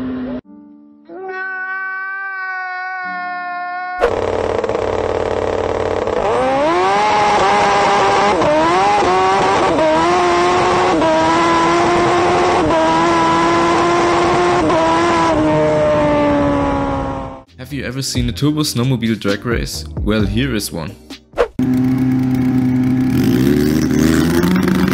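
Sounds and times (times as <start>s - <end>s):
motorcycle engine at full throttle: 4.0s - 17.5s, 21.6s - 24.9s.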